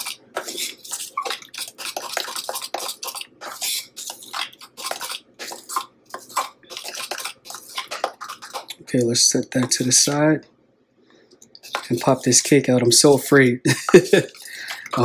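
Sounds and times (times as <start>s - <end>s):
spoon stirring glaze in glass: 0.0s - 8.8s, 11.5s - 12.6s, 13.9s - 15.0s.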